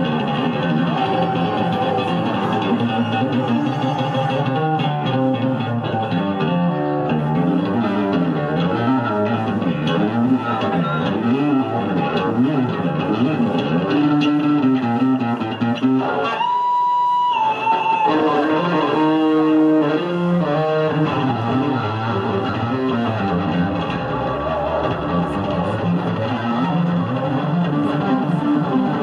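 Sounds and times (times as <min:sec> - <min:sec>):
electric bass guitar: 0:00.0 - 0:29.0.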